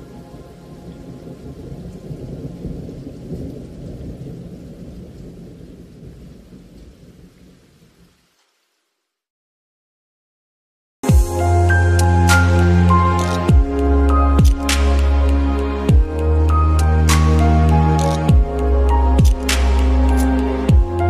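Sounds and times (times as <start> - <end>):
thunder rumbling: 0.0 - 8.1
steady rain: 0.0 - 9.3, 11.4 - 21.0.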